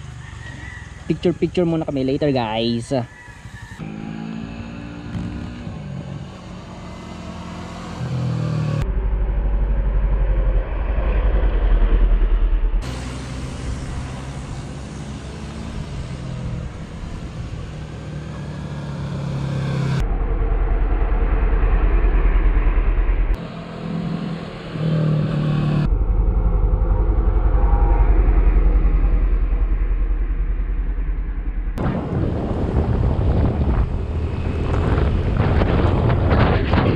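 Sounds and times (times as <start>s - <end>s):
motorcycle engine passing by: 3.4s - 8.9s, 12.9s - 20.0s.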